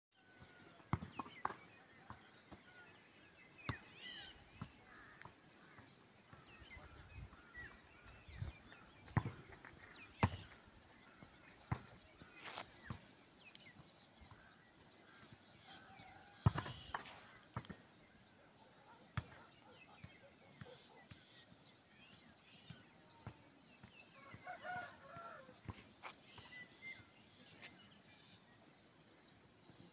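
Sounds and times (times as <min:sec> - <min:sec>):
birds chirping: 0:00.1 - 0:29.9.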